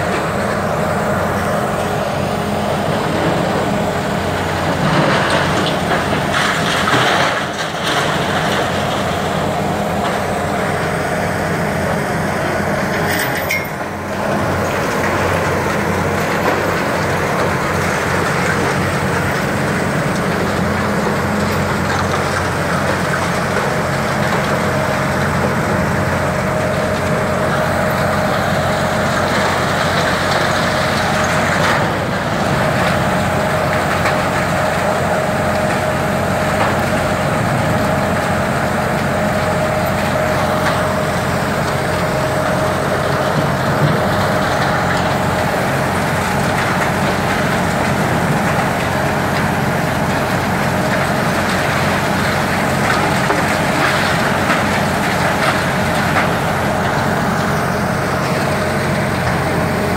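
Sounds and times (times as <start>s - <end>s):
excavator diesel engine and hydraulics: 0.0s - 59.9s
steady whine: 0.0s - 59.9s.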